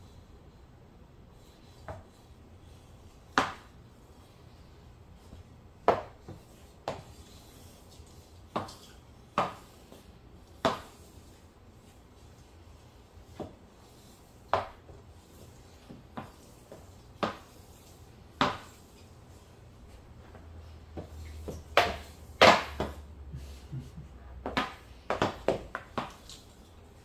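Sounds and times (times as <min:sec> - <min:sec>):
hockey stick knocking a puck: 0:03.3 - 0:03.7, 0:05.8 - 0:07.1, 0:08.5 - 0:09.7, 0:10.6 - 0:11.0, 0:15.8 - 0:17.6, 0:18.4 - 0:18.8, 0:20.9 - 0:23.0, 0:24.4 - 0:26.4.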